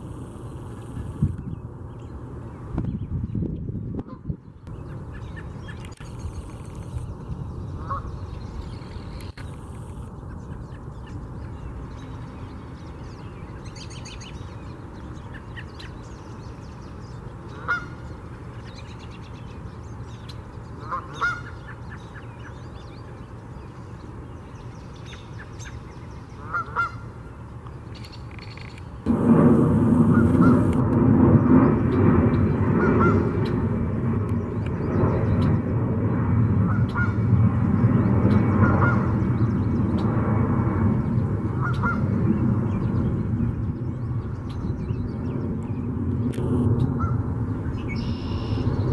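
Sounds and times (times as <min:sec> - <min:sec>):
steady low rumble: 0:00.0 - 0:27.9, 0:28.8 - 0:48.9
wild birds calling: 0:04.1 - 0:28.9
high bird chirps: 0:47.7 - 0:48.9.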